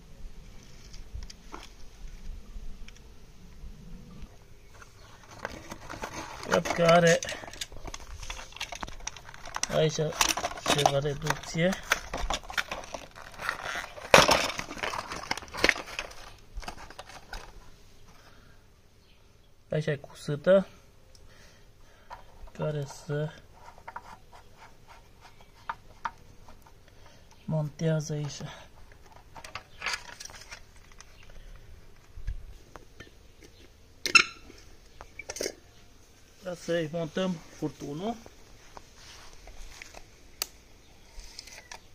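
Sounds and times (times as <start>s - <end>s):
hands handling plastic fittings: 4.7s - 17.7s, 22.0s - 34.3s, 37.0s - 40.5s
cardboard packaging tearing: 5.2s - 17.6s.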